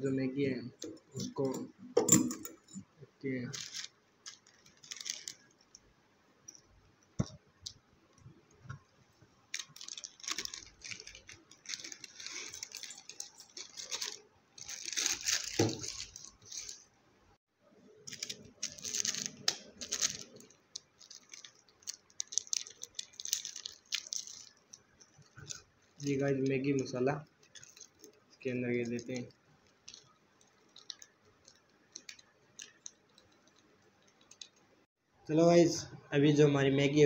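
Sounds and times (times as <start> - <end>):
plastic wrapper crinkling and tearing: 3.5 - 5.8, 9.5 - 16.8, 18.0 - 26.4, 27.2 - 34.6
small sachet tearing open: 3.6 - 5.6, 9.6 - 16.8, 18.1 - 26.2, 28.9 - 34.6.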